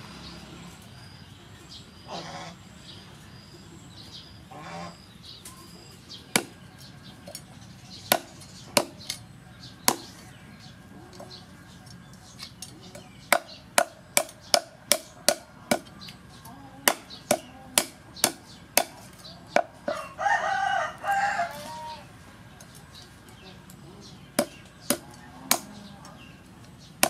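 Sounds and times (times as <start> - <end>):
cleaver chopping on wooden block: 6.3 - 6.6, 8.1 - 9.2, 9.9 - 10.2, 12.9 - 15.9, 16.9 - 19.7, 24.4 - 25.7.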